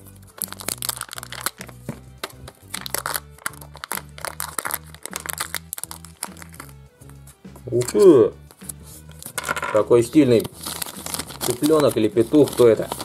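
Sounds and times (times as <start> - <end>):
plastic foil crinkling: 0.0 - 6.8, 10.1 - 13.0
background music with bass: 0.0 - 13.0.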